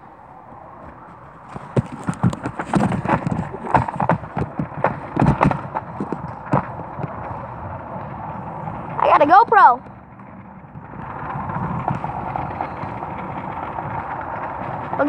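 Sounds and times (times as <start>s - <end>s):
board rolling over pavement: 0.0s - 15.0s.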